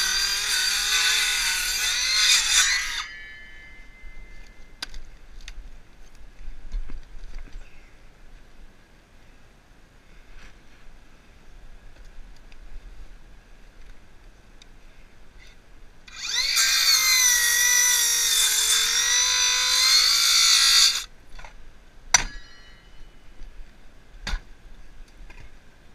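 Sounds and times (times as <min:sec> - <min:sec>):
power saw cutting wood: 0:00.0 - 0:03.2, 0:16.1 - 0:21.1.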